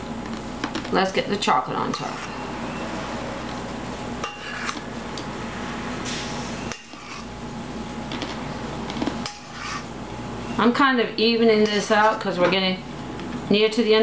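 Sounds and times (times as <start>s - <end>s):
spoon scraping metal bowl: 1.8s - 2.4s, 6.7s - 7.3s, 9.2s - 9.9s.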